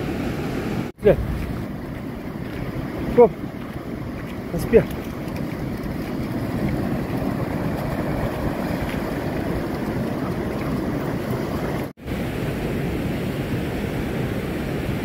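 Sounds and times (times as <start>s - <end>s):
ocean surf washing: 0.0s - 15.0s
wind buffeting microphone: 1.0s - 11.9s.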